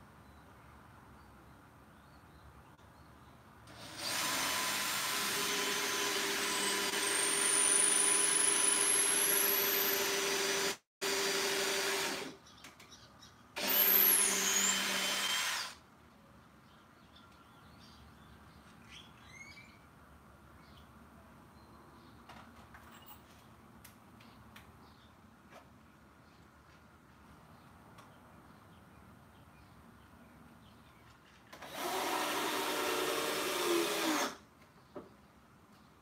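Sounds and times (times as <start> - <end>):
cordless drill driving screws: 3.7 - 12.4, 13.6 - 15.8, 31.6 - 34.4.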